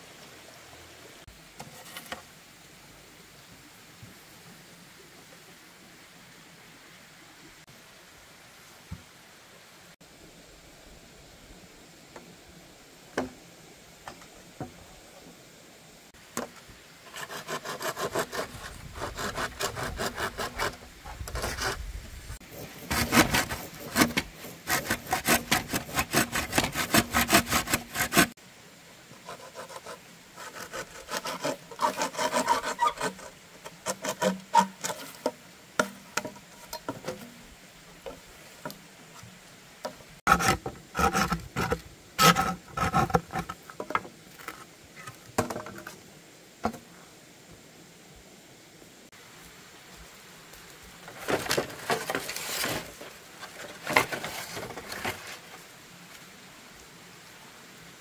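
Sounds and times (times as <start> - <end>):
hand saw cutting bamboo: 17.1 - 21.8, 22.5 - 28.4, 29.2 - 37.2, 40.3 - 43.6.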